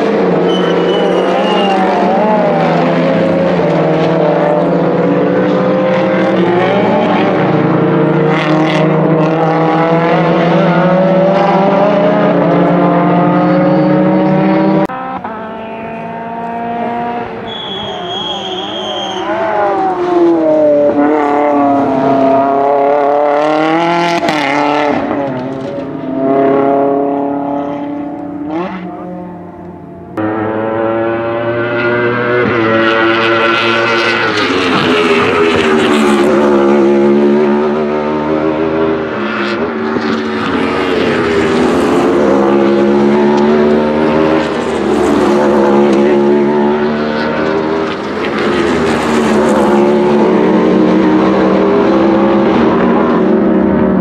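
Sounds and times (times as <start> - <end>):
race car engines accelerating: 0.0 - 54.0.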